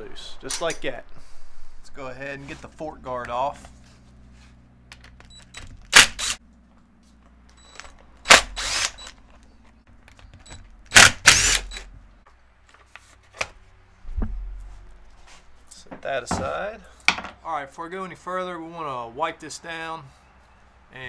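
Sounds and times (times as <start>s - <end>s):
impact driver bursts: 5.3s - 6.4s, 7.6s - 9.2s, 10.4s - 11.9s.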